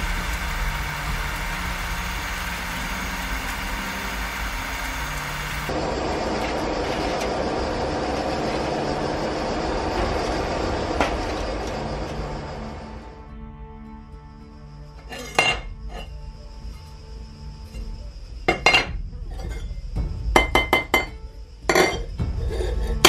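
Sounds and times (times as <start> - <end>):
oil bubbling and sizzling: 0.0 - 5.7
steady hiss: 0.0 - 5.7.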